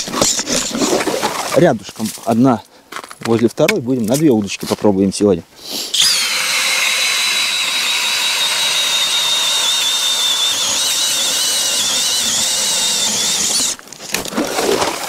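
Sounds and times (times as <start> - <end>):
ice auger motor whine: 6.0 - 13.8.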